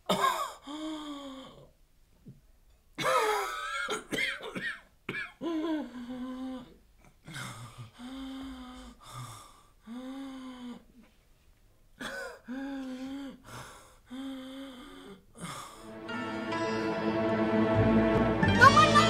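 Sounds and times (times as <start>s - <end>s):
man coughing and groaning: 0.0s - 0.6s, 3.0s - 5.8s, 12.0s - 12.5s
wheezing breath: 5.8s - 11.1s, 12.1s - 16.0s.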